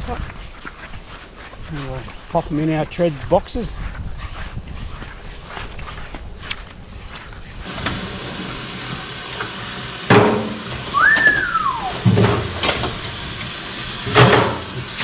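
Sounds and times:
tap running into sink: 0:09.0 - 0:11.4, 0:12.0 - 0:15.0
short whistle-like sound: 0:10.9 - 0:12.0.

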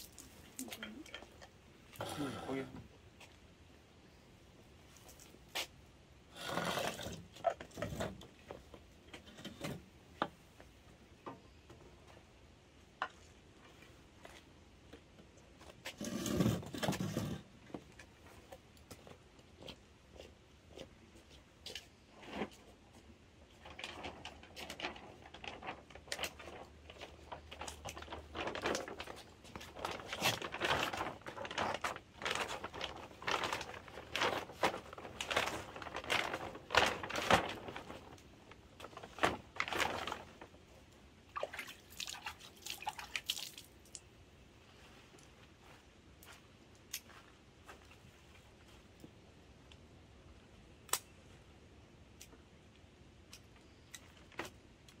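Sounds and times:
plastic sack crinkling: 0:23.6 - 0:40.6.

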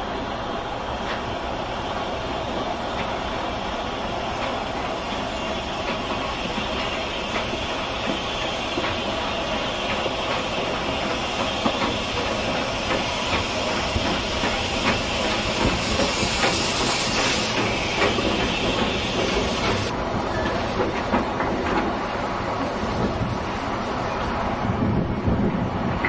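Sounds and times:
train wheels clicking over rails: 0:00.9 - 0:24.1
steam hiss: 0:01.2 - 0:19.9.

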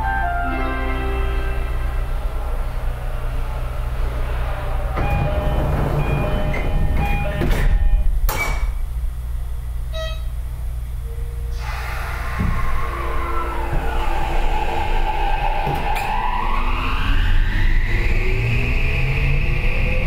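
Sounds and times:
low equipment hum: 0:00.0 - 0:19.8
train motors whining: 0:00.0 - 0:20.0
doors closing with a thump: 0:04.9 - 0:08.9, 0:12.3 - 0:12.9
train door chime: 0:05.0 - 0:08.7, 0:09.9 - 0:10.4.

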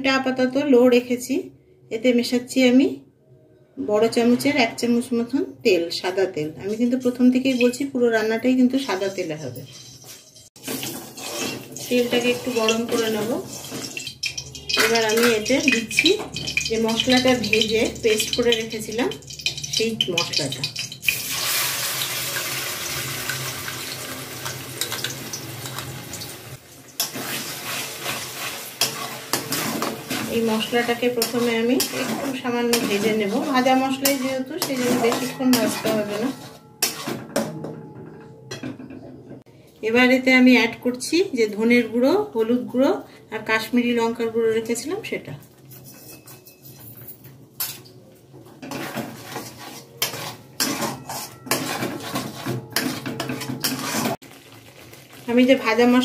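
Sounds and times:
stirring and scraping: 0:07.2 - 0:07.9, 0:08.8 - 0:21.3, 0:27.0 - 0:37.3, 0:48.6 - 0:54.2
paste sizzling in hot oil: 0:10.6 - 0:15.2, 0:20.8 - 0:35.4, 0:53.6 - 0:56.0
spatula clinking against pan: 0:13.8 - 0:21.0, 0:30.9 - 0:37.6, 0:50.0 - 0:54.0.

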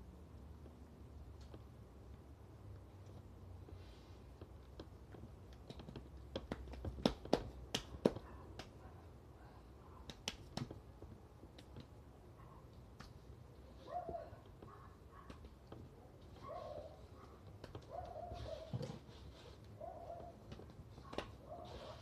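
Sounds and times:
hands slapping meat: 0:05.5 - 0:08.8, 0:10.0 - 0:10.9.

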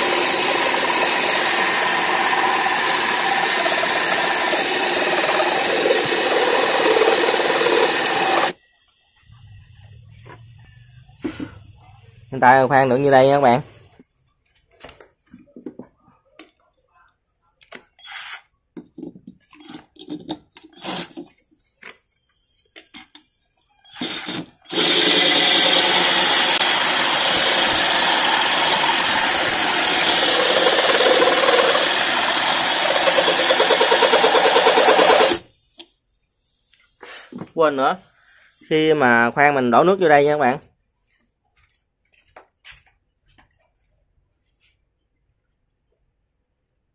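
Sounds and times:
drill grinding into glass: 0:00.0 - 0:08.6, 0:23.9 - 0:35.4.

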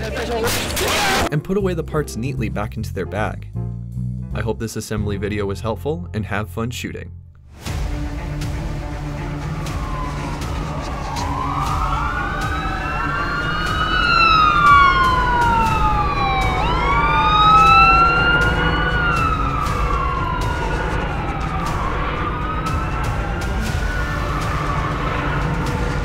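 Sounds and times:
emergency sirens wailing: 0:07.7 - 0:26.0.

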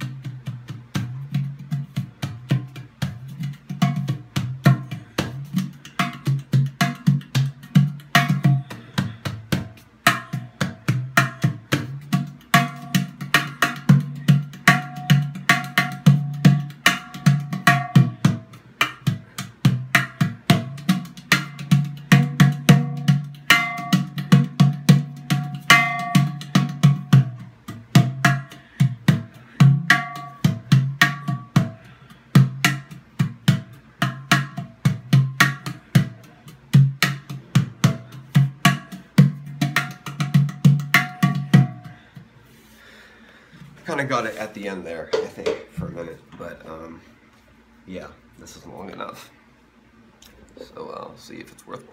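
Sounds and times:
steel hand drum played: 0:00.0 - 0:42.2.

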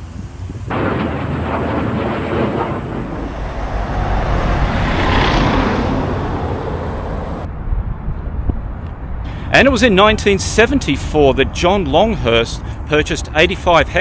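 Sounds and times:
fighter jet flying overhead: 0:00.8 - 0:09.2.

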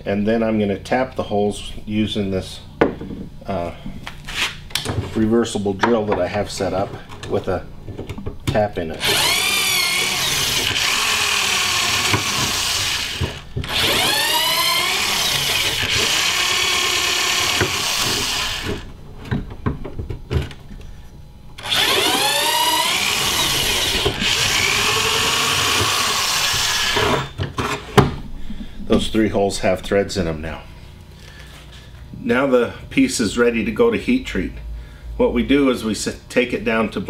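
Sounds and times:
electric drill motor: 0:09.0 - 0:18.9, 0:21.6 - 0:27.4.

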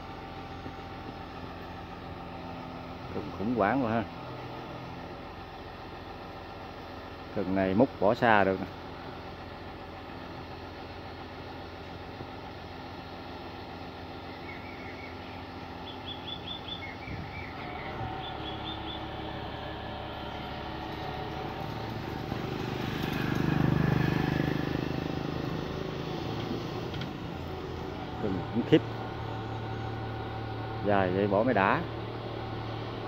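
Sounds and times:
excavator diesel engine running: 0:00.0 - 0:33.0
bird chirping: 0:14.3 - 0:19.1.

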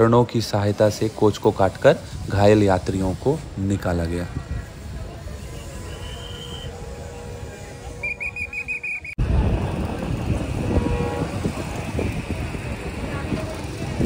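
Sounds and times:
loud deep noise: 0:09.1 - 0:14.0.

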